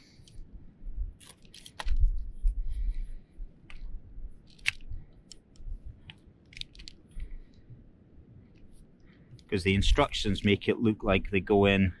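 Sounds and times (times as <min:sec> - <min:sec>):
plastic clicks and rattles: 0:04.5 - 0:07.0.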